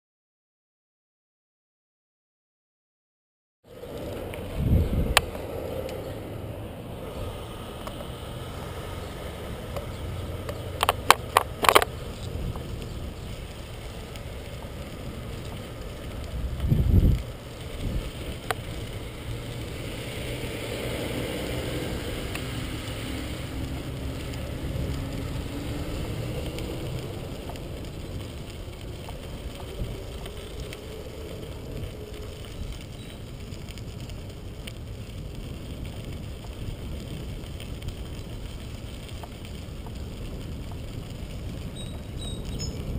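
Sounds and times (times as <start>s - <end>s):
bicycle tyres rumbling on gravel: 3.6s - 42.9s
sharp clicks: 9.7s - 12.9s.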